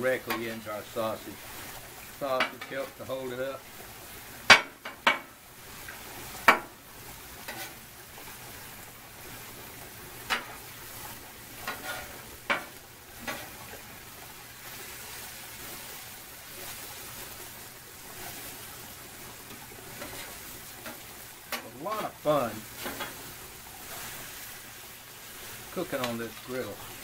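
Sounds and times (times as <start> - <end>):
food sizzling on griddle: 0.0 - 27.0
metal spatula scraping and tapping: 7.4 - 7.8, 10.2 - 10.6, 11.6 - 13.6, 19.5 - 22.1, 22.8 - 23.2.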